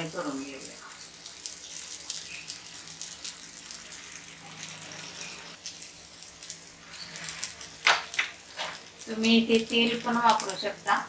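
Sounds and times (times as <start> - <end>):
patties sizzling in a pan: 0.0 - 11.0.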